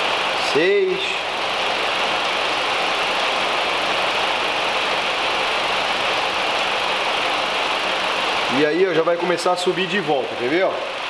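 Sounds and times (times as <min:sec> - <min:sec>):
radiator cooling fan rushing: 0:00.0 - 0:11.0.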